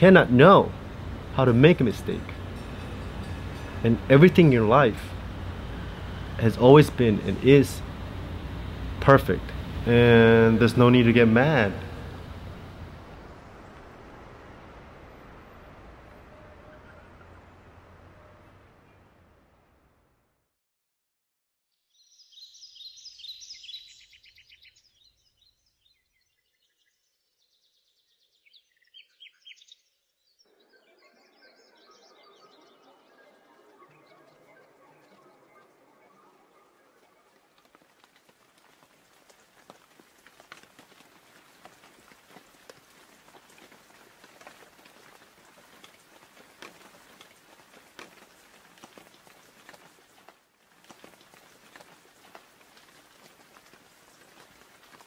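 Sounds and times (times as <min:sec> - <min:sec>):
light rain hiss: 0:00.0 - 0:20.0, 0:33.4 - 0:55.0
small birds chirping: 0:21.9 - 0:55.0
raindrops ticking: 0:36.9 - 0:55.0.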